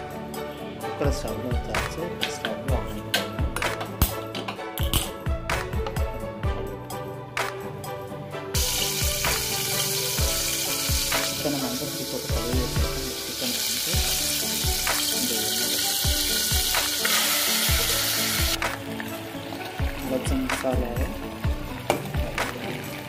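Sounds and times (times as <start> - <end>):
background music with steady beat: 0.0 - 23.0
hot oil sizzling: 8.6 - 23.0.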